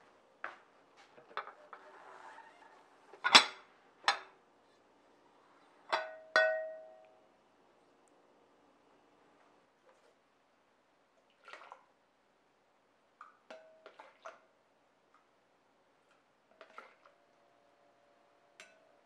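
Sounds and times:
ceramic lid clinking: 5.9 - 7.0.

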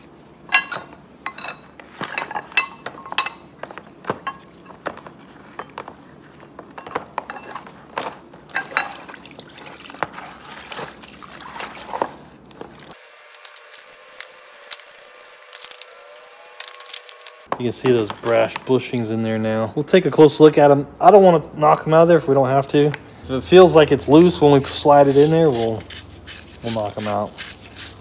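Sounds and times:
metal clinks and scrapes: 0.5 - 3.5, 4.2 - 5.9, 6.7 - 7.8
liquid sloshing and splashing: 8.0 - 13.0
brushes scrubbing metal parts: 22.5 - 28.0.

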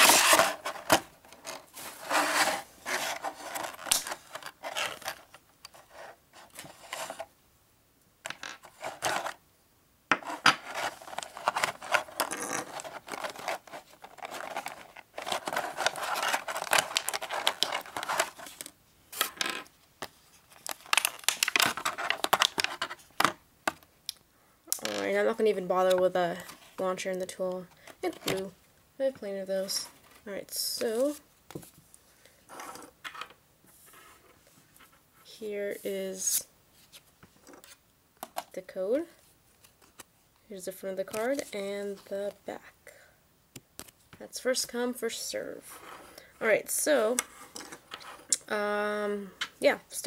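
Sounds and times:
plastic tray crinkling and scraping: 0.0 - 7.3, 8.3 - 9.4, 10.1 - 19.7, 20.4 - 23.8.

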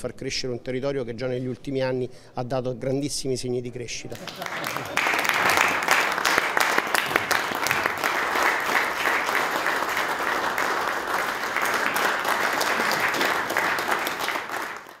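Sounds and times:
audience applauding: 4.2 - 15.0.

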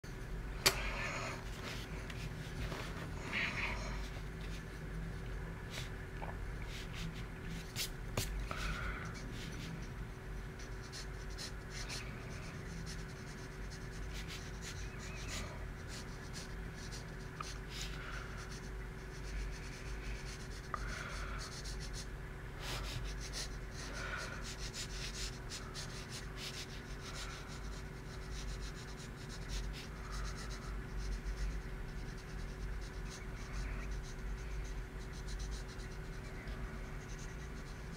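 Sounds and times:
low background hum: 0.0 - 37.9
pencil sketching on paper: 9.0 - 20.7, 22.8 - 37.9.

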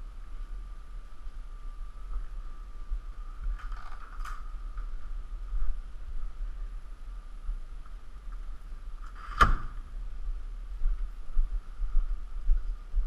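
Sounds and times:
low rumble: 0.0 - 13.0
door closing with a bang: 9.1 - 9.8.

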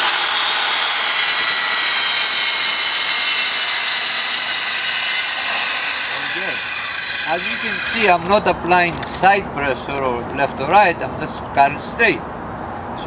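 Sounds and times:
circular saw cutting plywood: 0.0 - 8.3.

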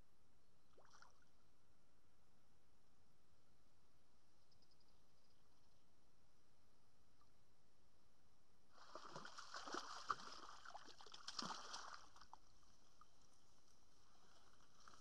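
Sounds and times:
water splashing and sloshing: 8.8 - 13.2.

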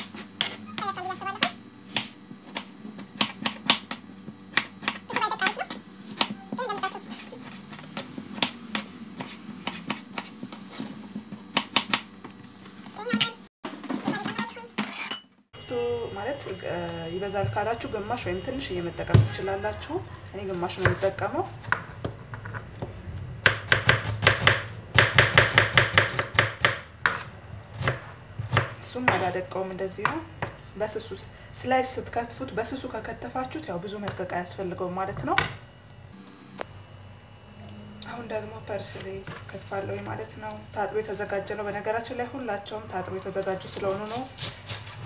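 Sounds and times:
knife chopping on plastic board: 1.4 - 12.1, 21.6 - 29.2.

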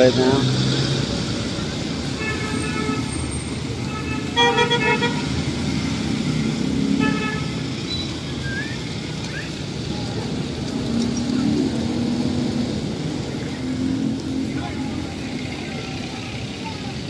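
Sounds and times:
traffic on a wet street: 0.0 - 17.0
vehicle horns beeping: 3.9 - 5.3.

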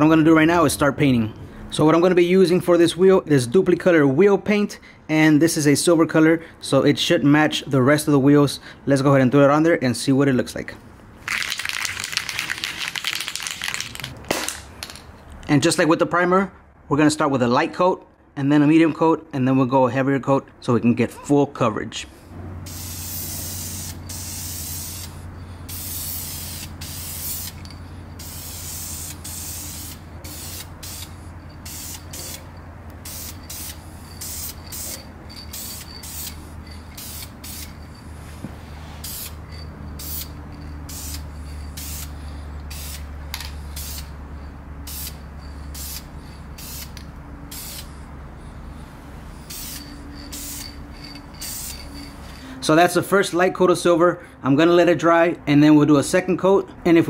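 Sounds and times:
aerosol spray can hissing: 22.7 - 27.6, 28.2 - 37.8, 39.0 - 44.1, 44.8 - 47.9, 49.5 - 50.7, 51.3 - 51.9.

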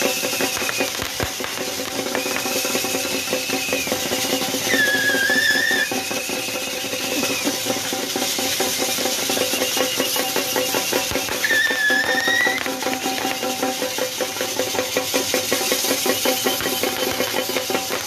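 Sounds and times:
drum beats: 0.0 - 18.0.

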